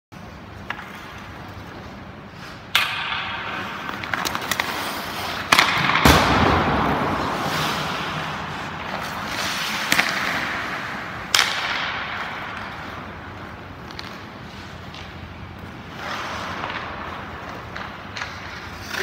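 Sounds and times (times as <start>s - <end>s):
skate blades scraping ice: 0.2s - 19.0s
hockey stick tapping puck: 0.4s - 1.8s, 2.5s - 19.0s
sharp crack of a shot: 5.7s - 8.2s.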